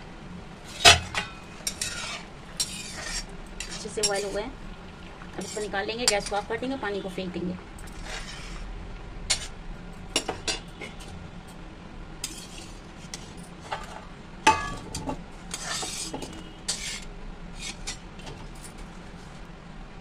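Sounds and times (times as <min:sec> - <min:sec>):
steel spoon scraping a pot: 0:00.7 - 0:04.5, 0:05.4 - 0:06.5, 0:07.8 - 0:08.7, 0:09.3 - 0:09.6, 0:12.2 - 0:14.0, 0:15.5 - 0:18.1.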